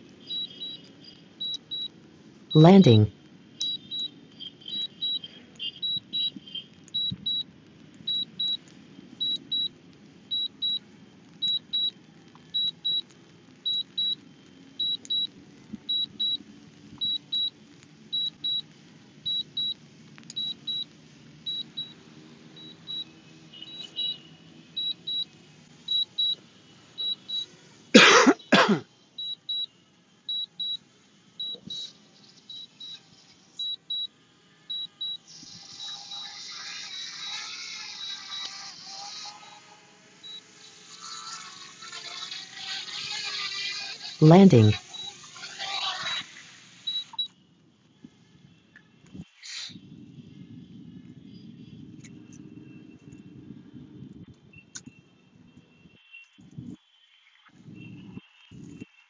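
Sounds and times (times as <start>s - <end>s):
short high double beeps: 2.6s - 3.8s.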